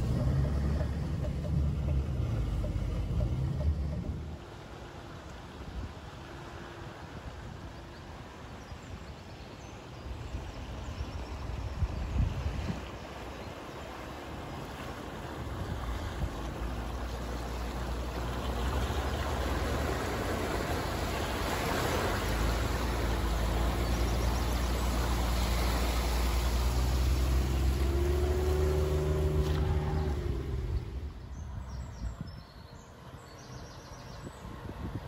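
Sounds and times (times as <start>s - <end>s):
car engine running: 0.0s - 4.4s
water splashing around wheels: 0.0s - 35.0s.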